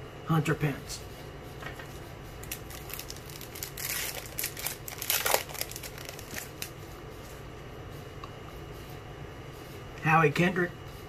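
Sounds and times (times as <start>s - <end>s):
foil wrapper tearing and crinkling: 2.4s - 6.7s.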